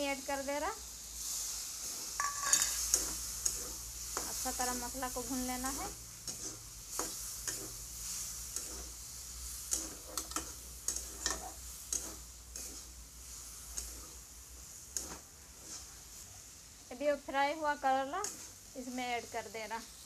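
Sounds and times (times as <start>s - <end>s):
frying sizzle: 0.0s - 20.0s
metal spatula scraping a pan: 1.2s - 16.3s, 17.7s - 19.4s.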